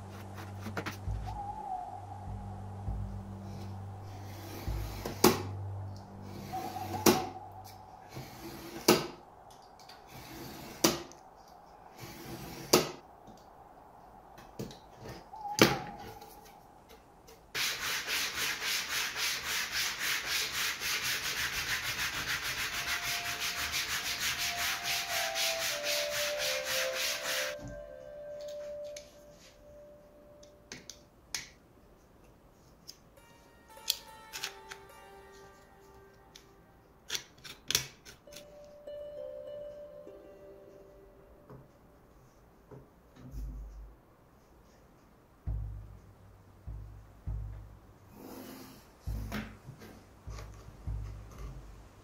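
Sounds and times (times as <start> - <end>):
sandpaper rubbing on board: 0.0 - 1.0, 17.6 - 27.6.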